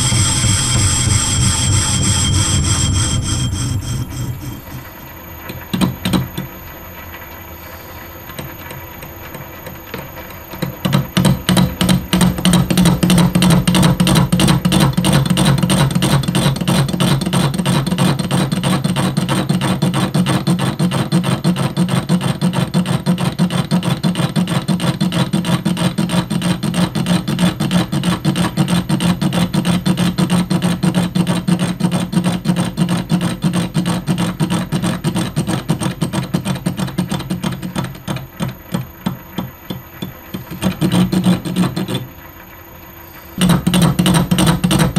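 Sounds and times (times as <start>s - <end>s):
metal lathe running: 0.0s - 6.7s.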